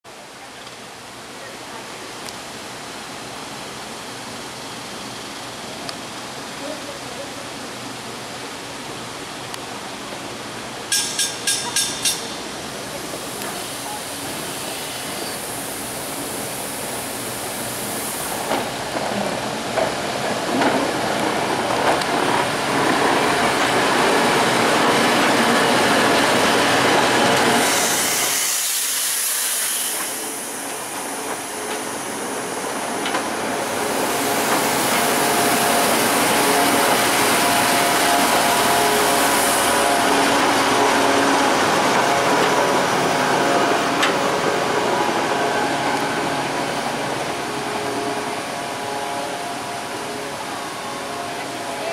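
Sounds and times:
railcar running on track: 0.1s - 51.9s
burst of hiss: 12.9s - 18.9s, 27.6s - 32.7s.

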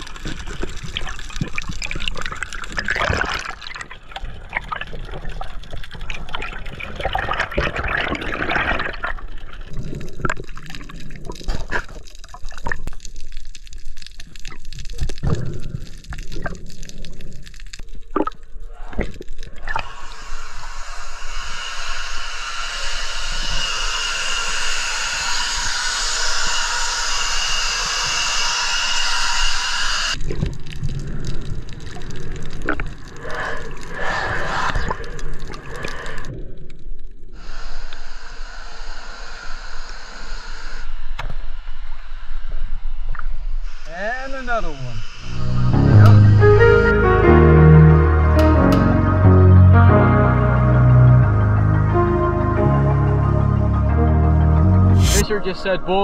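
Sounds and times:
muffled underwater bubbling: 0.0s - 13.0s.

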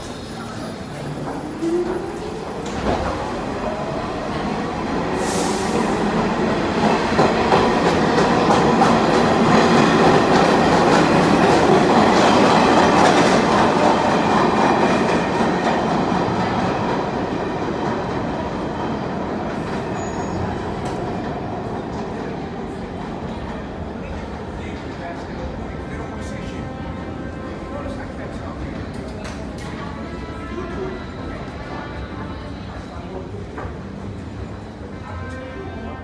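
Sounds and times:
subway train rumbling: 0.0s - 36.0s.

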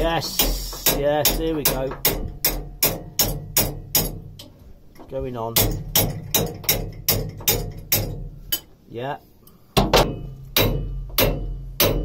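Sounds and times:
hammer knocking on metal: 0.3s - 4.4s, 5.5s - 8.3s, 9.8s - 12.0s.

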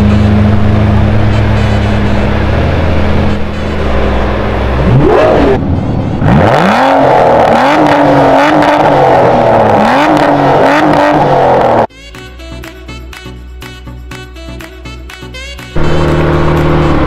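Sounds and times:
car engine revving: 0.0s - 11.9s, 15.7s - 17.0s.

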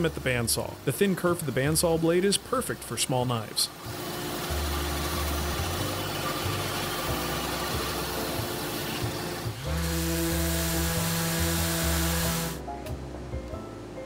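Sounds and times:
background music: 0.0s - 14.0s
bandsaw cutting wood: 3.8s - 12.6s
orbital sander running: 3.8s - 12.6s.

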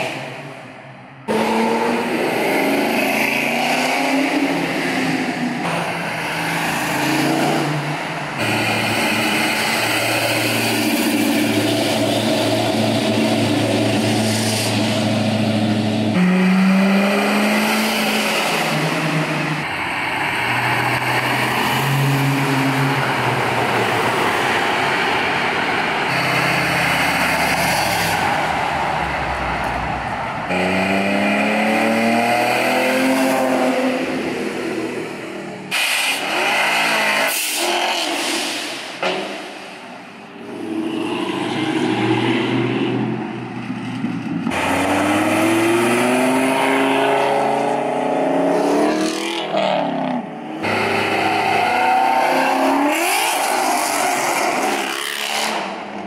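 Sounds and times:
car engines revving past: 40.4s - 56.0s.

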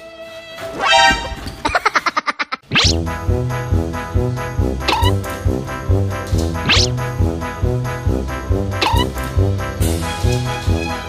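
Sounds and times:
staccato notes: 8.8s - 9.3s.

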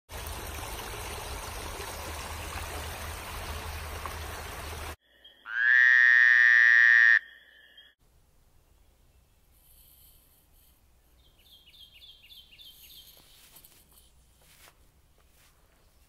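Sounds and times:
water rushing over rocks: 0.1s - 5.0s
faint frog calls: 5.0s - 8.0s
frog call: 5.1s - 8.0s.

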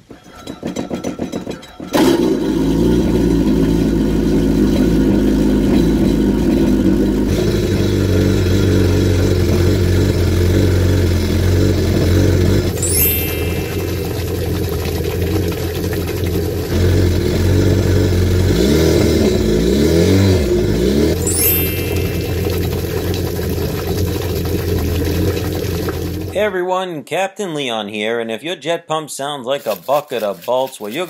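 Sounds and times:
boat engine cranking: 0.0s - 3.8s
boat engine running: 1.0s - 26.4s.

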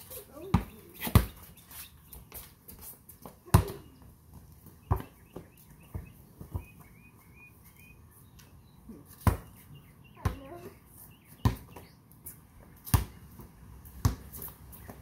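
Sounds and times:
birds chirping faintly: 0.0s - 12.3s
basketball bouncing: 0.5s - 1.4s, 4.9s - 5.2s, 14.0s - 14.3s.

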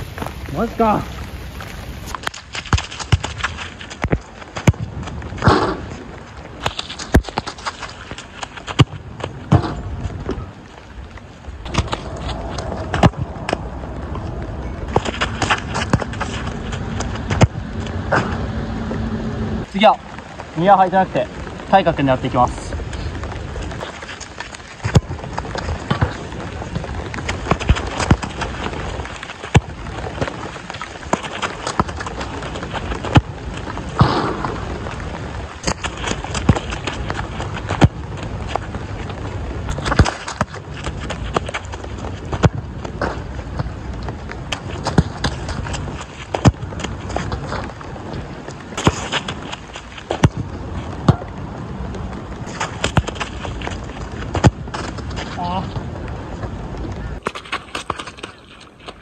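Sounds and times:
running footfalls on turf: 0.0s - 18.6s
footfalls on wet turf: 0.0s - 19.0s, 19.6s - 59.0s
steady low rumble: 0.0s - 40.0s
boot kicking football: 2.6s - 6.0s, 48.7s - 51.3s, 52.4s - 55.9s
football being kicked: 4.0s - 6.0s, 24.8s - 26.3s, 50.1s - 51.3s, 54.2s - 55.1s.

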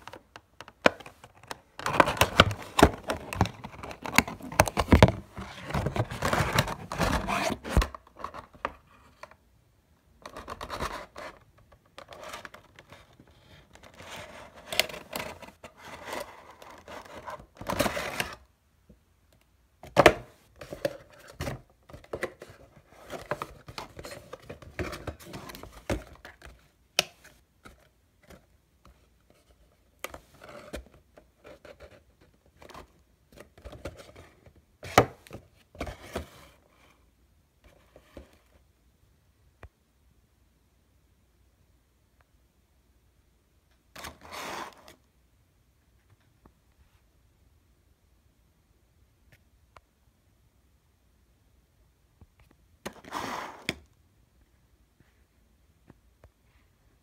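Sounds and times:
plastic and cardboard crinkling: 0.0s - 9.3s, 19.9s - 29.5s.

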